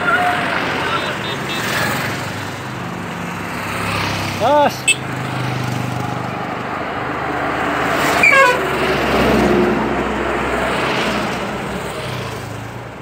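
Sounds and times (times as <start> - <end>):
motorcycle engine: 0.0 - 9.9
vehicle engine and road noise: 0.0 - 13.0
high-pitched horn toot: 4.8 - 5.0, 8.2 - 8.6.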